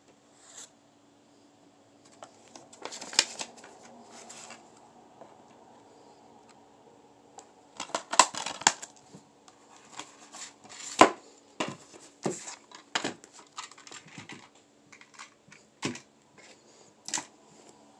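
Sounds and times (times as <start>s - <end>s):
plastic cases clicking and clattering: 7.8s - 9.0s, 9.8s - 16.1s.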